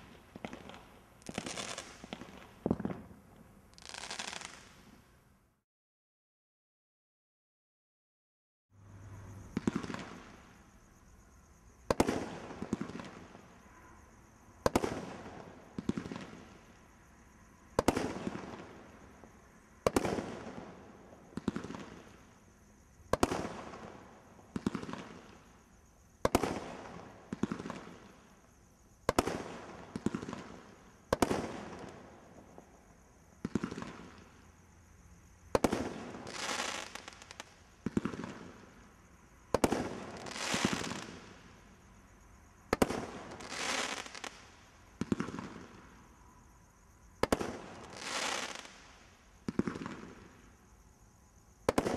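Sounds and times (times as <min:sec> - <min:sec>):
firework hiss: 0:00.0 - 0:03.1, 0:03.7 - 0:05.0, 0:35.8 - 0:37.6, 0:39.8 - 0:41.5, 0:42.7 - 0:44.5, 0:47.2 - 0:49.1.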